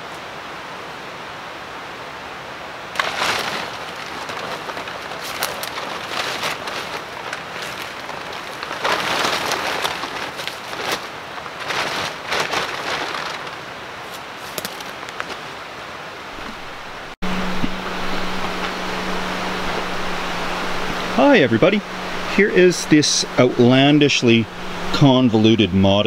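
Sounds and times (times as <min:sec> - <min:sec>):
plastic tarp crinkling: 0:02.9 - 0:15.5
steady low hum: 0:16.3 - 0:26.0.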